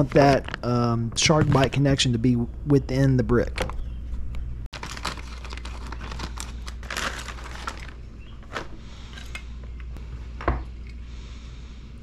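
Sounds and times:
plastic packaging crinkling: 4.7 - 9.3.

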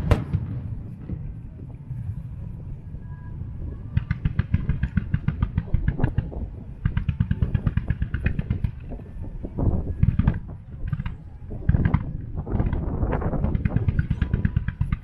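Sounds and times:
fireworks pops and crackles: 0.0 - 1.8, 3.9 - 15.0
heavy fireworks booms: 0.0 - 2.1, 3.7 - 15.0
low rumble: 0.0 - 15.0.

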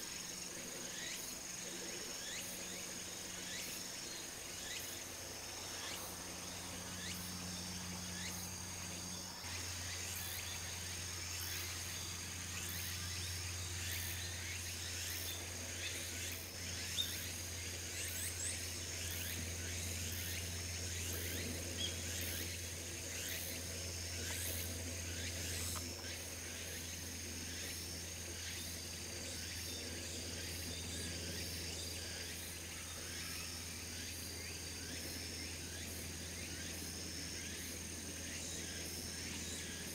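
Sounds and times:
insects chirping and trilling: 0.0 - 39.9
low steady hum: 0.0 - 39.9.

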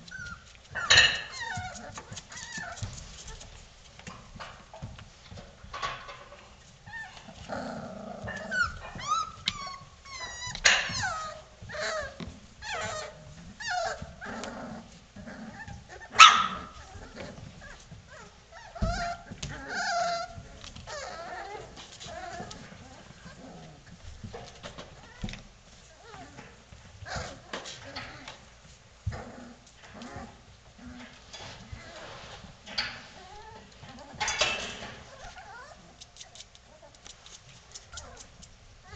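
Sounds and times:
puppies yipping and whining: 0.0 - 3.6, 8.2 - 14.5, 15.4 - 23.4, 26.0 - 28.4, 33.0 - 37.0
puppy yelp: 0.1 - 3.4, 8.3 - 14.1, 15.5 - 23.4, 35.0 - 37.0.

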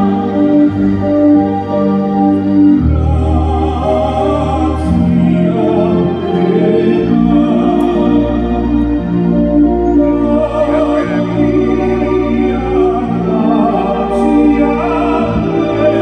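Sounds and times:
instrumental accompaniment: 0.0 - 16.0
man singing operatic style: 2.9 - 8.6, 10.1 - 16.0.

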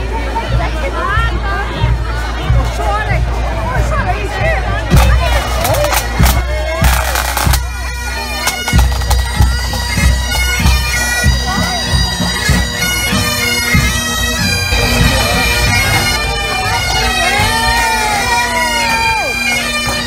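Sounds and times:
drum beats: 0.0 - 20.0
bagpipes playing: 5.0 - 20.0.

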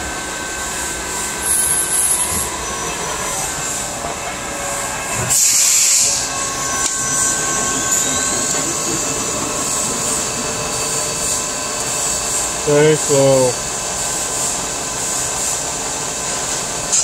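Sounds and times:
lathe humming: 0.0 - 17.0
hiss: 5.3 - 12.6, 13.4 - 17.0.

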